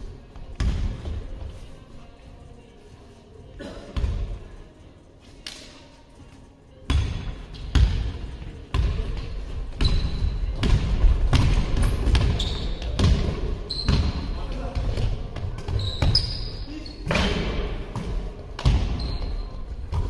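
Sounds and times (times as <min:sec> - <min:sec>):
basketball bouncing on gym floor: 0:00.6 - 0:01.2, 0:06.9 - 0:16.4, 0:17.1 - 0:20.0
sneaker squeaks: 0:09.7 - 0:10.7, 0:11.8 - 0:14.4, 0:15.4 - 0:17.2, 0:18.6 - 0:20.0.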